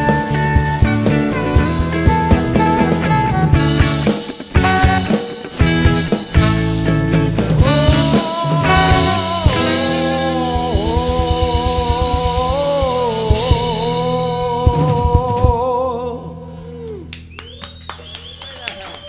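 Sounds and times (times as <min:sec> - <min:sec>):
live rock band: 0:00.0 - 0:19.0
person singing: 0:07.5 - 0:17.1.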